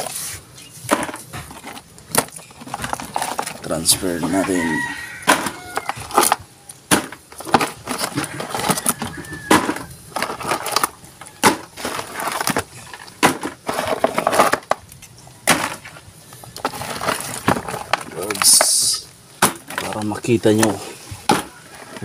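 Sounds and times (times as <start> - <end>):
crabs clattering in plastic tub: 0.9 - 22.0.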